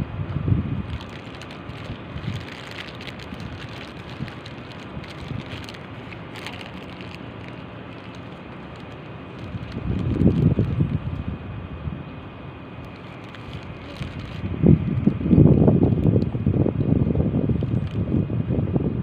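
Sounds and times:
wind gusting on microphone: 0.0 - 12.2, 12.9 - 19.0
faint crackles: 0.8 - 11.3, 12.8 - 15.2.

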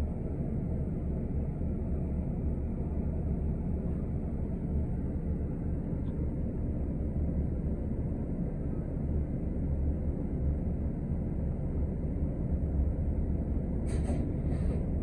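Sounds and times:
bus engine and road noise: 0.0 - 15.0.

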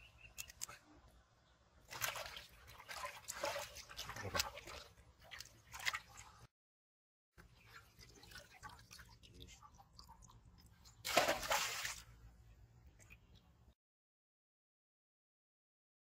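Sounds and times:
fish thrashing in water: 1.8 - 6.5, 11.0 - 12.0
water splashing in a metal pot: 1.8 - 6.5, 7.4 - 12.2.

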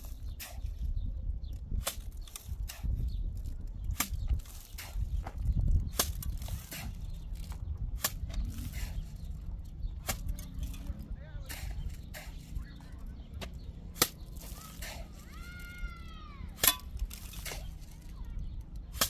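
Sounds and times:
steady low rumble: 0.0 - 19.0
hard objects clicking and knocking: 13.2 - 19.0.

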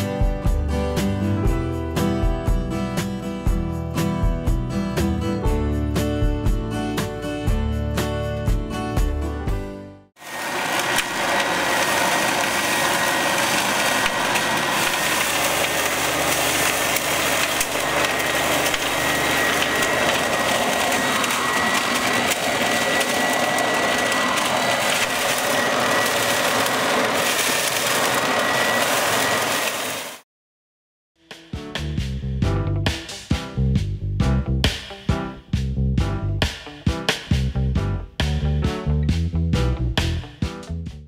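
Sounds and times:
leaf vacuum fan whine: 10.2 - 30.2
leaves being sucked and shredded: 10.2 - 30.2.

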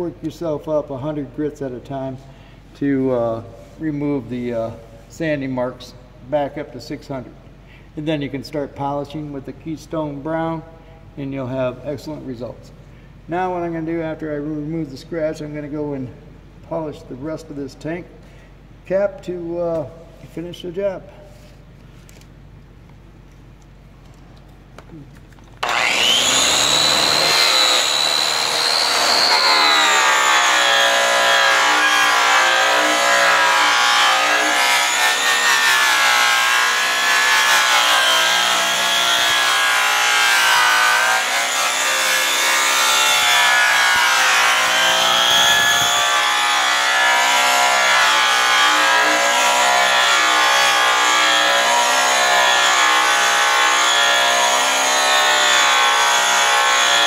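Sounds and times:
grinder whining: 25.6 - 57.0.

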